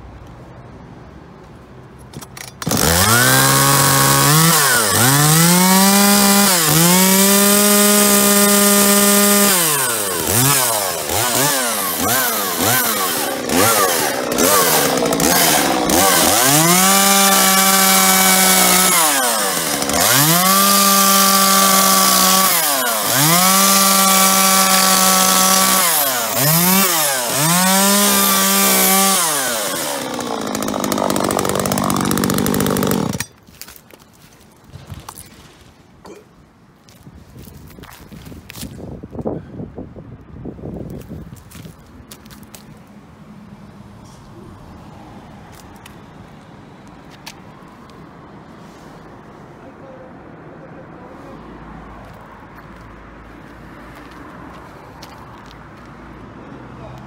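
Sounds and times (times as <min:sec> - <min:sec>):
chainsaw revving and idling: 0:02.6 - 0:33.3.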